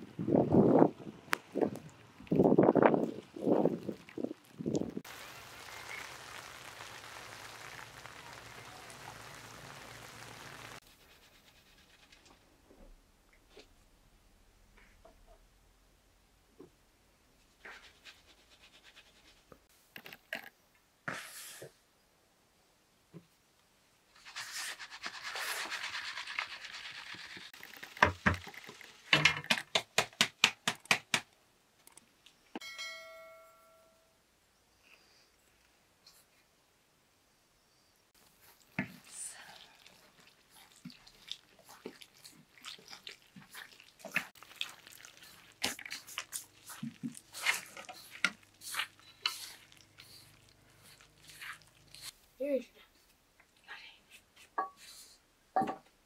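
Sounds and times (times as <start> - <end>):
rain falling on wet ground: 1.3 - 10.8
flour rasping through sieve mesh: 24.1 - 29.1, 38.2 - 52.2
metal bowl ringing: 32.6 - 34.2.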